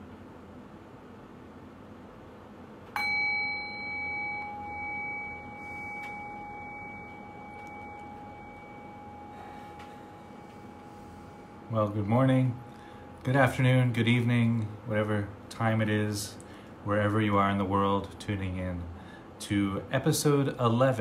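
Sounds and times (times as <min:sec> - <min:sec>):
meditation bell ringing: 0:02.9 - 0:14.4.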